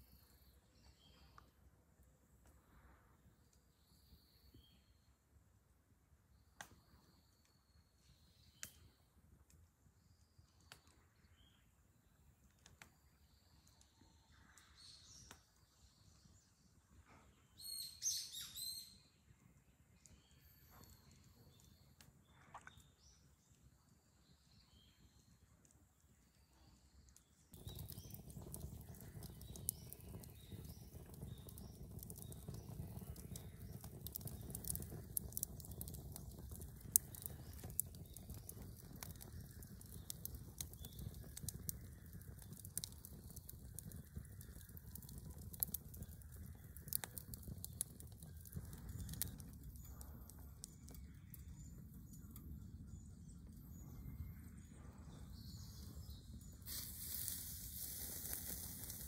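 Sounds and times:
campfire crackling and popping: 8.6 - 9.6, 12.4 - 15.6, 26.4 - 54.4, 55.1 - 59.0.

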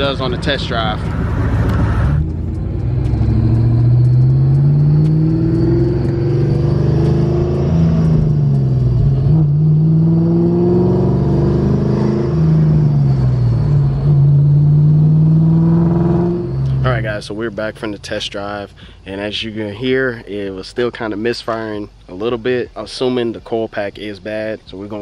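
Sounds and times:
car engine revving misfiring: 0.0 - 17.1.

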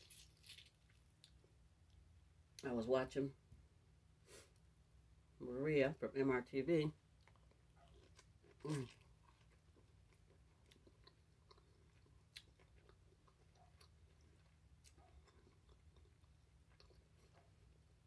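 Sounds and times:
close-up chewing: 7.2 - 18.0.

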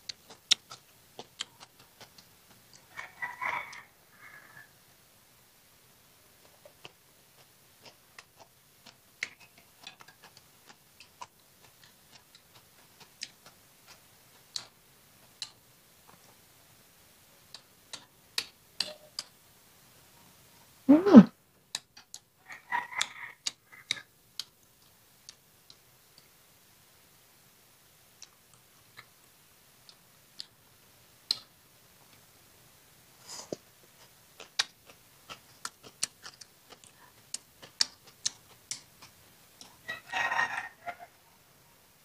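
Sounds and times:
chewing clicks and smacks: 0.0 - 2.9, 6.4 - 16.3, 17.5 - 19.4, 21.7 - 22.3, 23.0 - 25.9, 28.2 - 30.6, 31.3 - 32.2, 33.5 - 39.8.

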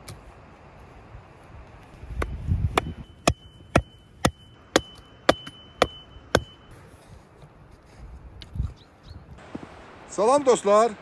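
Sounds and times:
hatchet chopping wood: 2.2 - 6.6.

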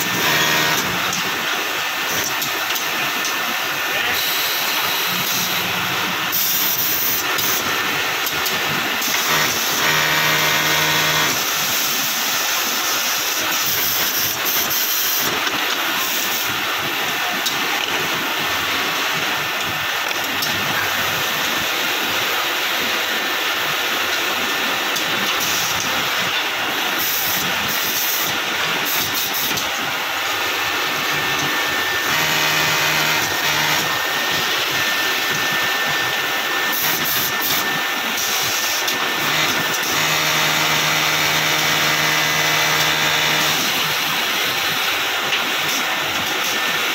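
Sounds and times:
loud hissing noise: 0.0 - 46.9
machine hum: 25.0 - 45.1.

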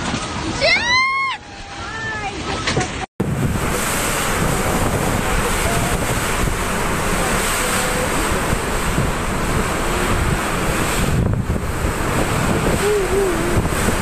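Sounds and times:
heavy rain: 0.0 - 14.0
wind gusts buffeting microphone: 2.6 - 14.0
strong wind rushing: 3.2 - 14.0.

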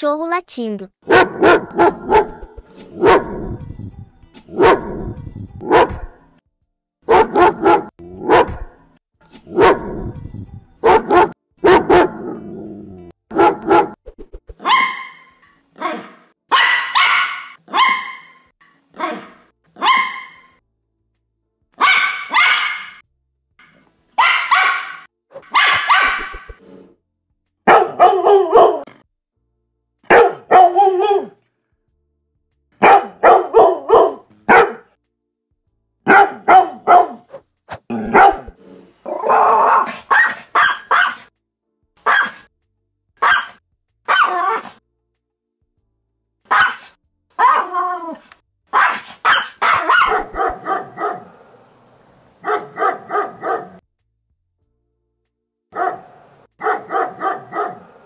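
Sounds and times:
dogs barking: 1.0 - 3.4, 4.5 - 5.0, 5.6 - 6.1, 7.1 - 8.7, 9.4 - 9.9, 10.8 - 12.4, 13.3 - 14.0, 14.6 - 20.6, 21.8 - 23.0, 24.2 - 26.6, 27.6 - 29.0, 30.1 - 31.4, 32.8 - 35.0, 36.0 - 38.6, 39.2 - 41.3, 42.0 - 42.5, 43.2 - 44.8, 46.5 - 47.8, 48.7 - 51.6, 52.4 - 53.8, 55.7 - 58.0
dog high sharp yapping: 1.1 - 3.2, 14.6 - 15.3, 16.5 - 18.4, 19.0 - 20.5, 21.8 - 23.0, 24.2 - 26.6, 30.1 - 31.3, 39.7 - 41.3, 42.0 - 42.5, 43.2 - 44.8, 46.5 - 47.8, 48.7 - 51.2, 52.4 - 53.8, 56.6 - 57.8
dog low barks: 7.1 - 8.6, 27.7 - 29.0, 30.1 - 31.3, 32.8 - 34.9, 36.1 - 37.2, 37.9 - 38.5, 39.3 - 41.3, 46.5 - 47.8, 48.8 - 51.4, 52.4 - 53.8, 55.8 - 58.0.

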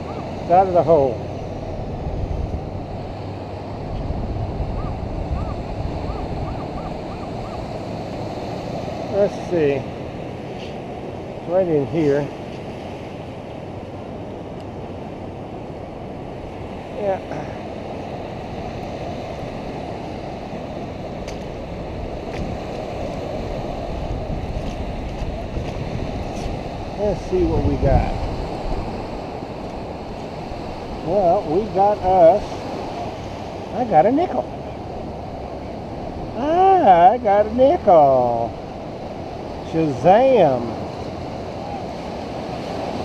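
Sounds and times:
surf: 0.0 - 43.0
wind on microphone: 1.2 - 9.3, 18.2 - 37.4.

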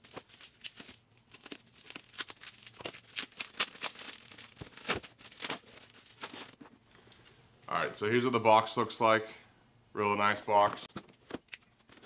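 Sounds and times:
package wrapping tearing: 0.0 - 6.6.

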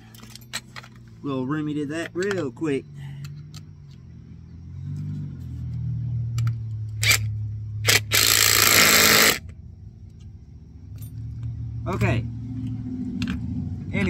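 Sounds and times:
cordless power driver whirring: 7.0 - 7.3, 7.9 - 9.4.

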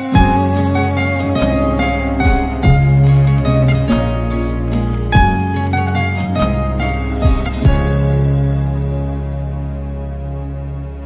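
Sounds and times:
instrumental music with deep bass: 0.0 - 11.0.

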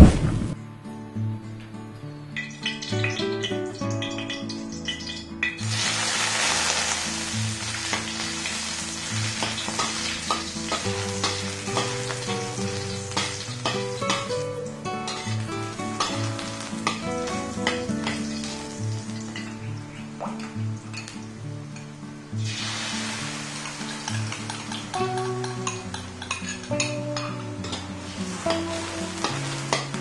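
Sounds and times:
mushrooms sizzling in hot oil: 2.6 - 21.4, 22.3 - 30.0
metal spatula scraping wok: 27.6 - 30.0.

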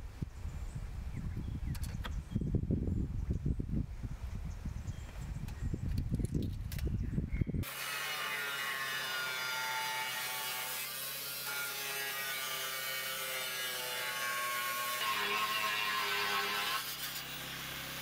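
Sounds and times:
angle grinder cutting steel drum: 7.6 - 18.0.

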